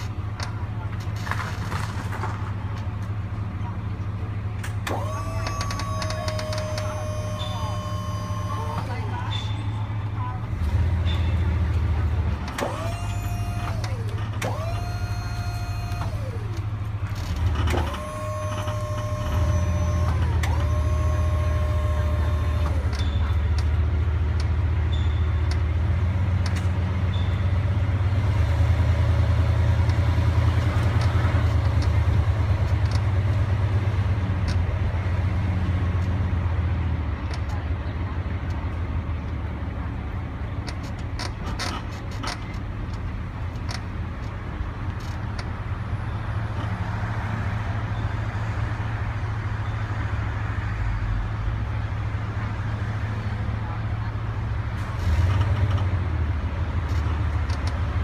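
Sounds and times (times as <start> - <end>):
truck engine rumbling: 0.0 - 58.0
short rising whines: 4.9 - 9.8, 12.5 - 23.2.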